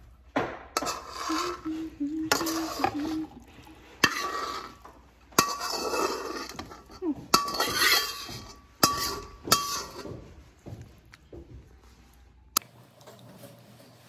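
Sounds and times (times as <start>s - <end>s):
metal spatula scraping a wok: 0.8s - 10.1s
metal clinking on wok: 5.4s - 10.1s.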